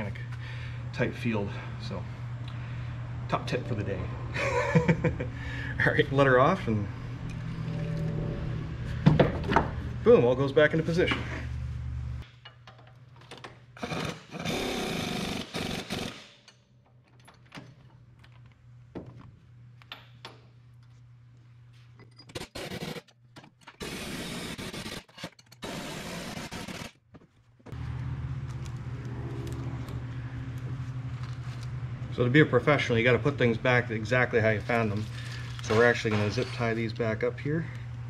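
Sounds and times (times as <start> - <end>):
steady low hum: 0.0 - 12.5, 27.8 - 35.7
impact wrench bursts: 13.8 - 16.5, 23.8 - 27.0.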